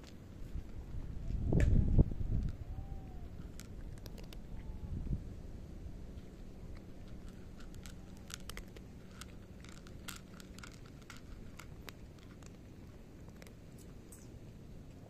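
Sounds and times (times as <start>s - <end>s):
cat crunching dry kibble: 2.3s - 4.8s, 6.1s - 15.0s.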